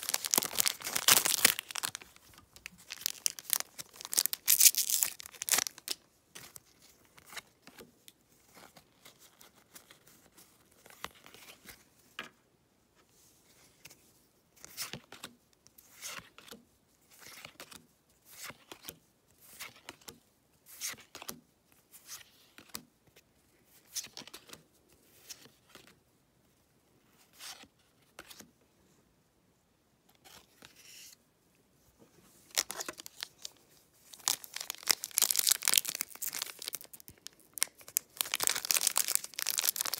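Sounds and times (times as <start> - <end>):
wrapper crinkling: 0.0 - 6.0, 32.5 - 39.9.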